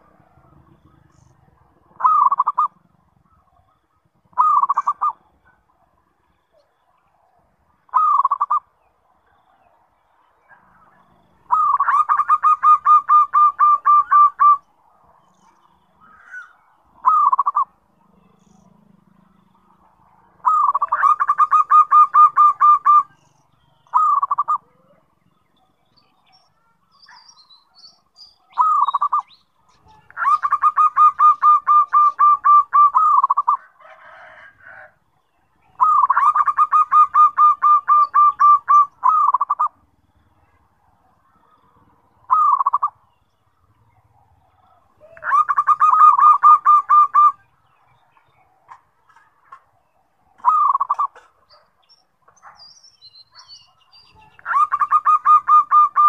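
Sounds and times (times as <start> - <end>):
dove cooing: 0.0 - 5.9, 6.5 - 8.7, 10.7 - 14.7, 16.0 - 18.2, 20.3 - 23.2, 23.9 - 25.2, 28.5 - 35.0, 35.7 - 40.6, 41.2 - 43.1, 44.0 - 47.6, 48.7 - 51.7, 54.2 - 56.0.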